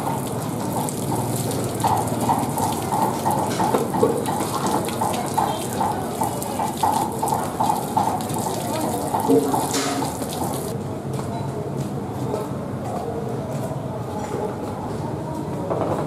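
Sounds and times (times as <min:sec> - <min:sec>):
water gushing from hose: 0:00.0 - 0:10.7
water splashing into metal basin: 0:00.0 - 0:10.7.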